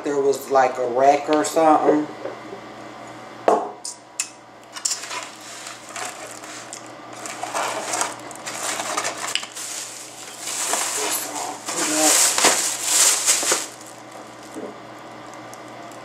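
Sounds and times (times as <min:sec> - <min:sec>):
foam boxes scraping and rustling: 0:04.9 - 0:14.0.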